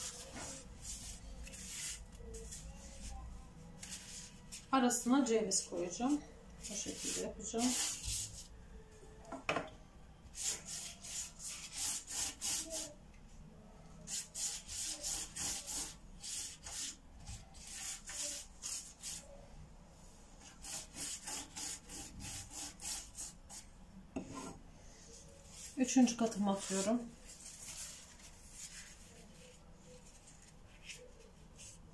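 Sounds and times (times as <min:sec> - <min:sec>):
pastry brush strokes on dough: 0:00.0 - 0:04.8, 0:06.1 - 0:08.6, 0:14.0 - 0:31.9.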